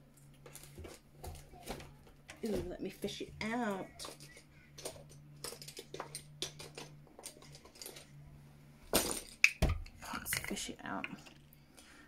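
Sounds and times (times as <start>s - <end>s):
faint low hum: 0.0s - 12.0s
makeup containers clicking and rustling: 0.2s - 8.2s, 9.0s - 11.5s.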